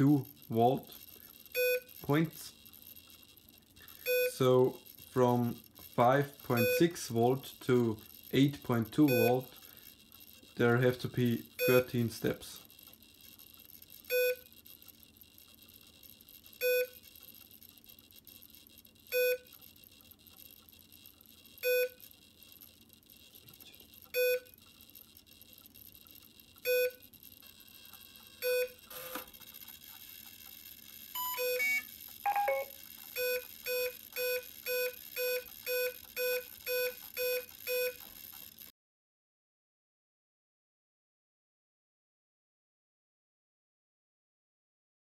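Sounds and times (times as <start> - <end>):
short electronic beeps: 1.5 - 1.9, 4.0 - 4.4, 9.1 - 9.4, 14.1 - 14.5, 16.6 - 17.0, 19.1 - 19.5, 24.2 - 24.6, 26.6 - 27.0, 28.4 - 29.2, 31.2 - 38.0.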